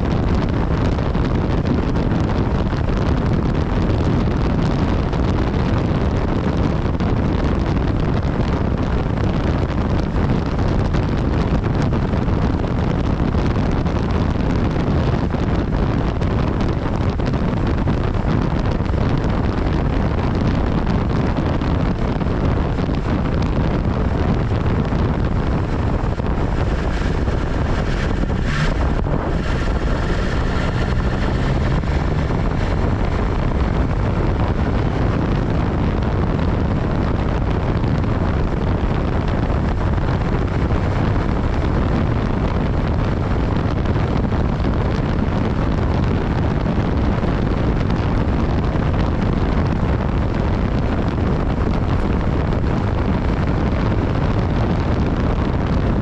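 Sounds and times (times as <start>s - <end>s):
wind rush on microphone: 0.0s - 56.0s
motorcycle engine: 23.4s - 38.4s.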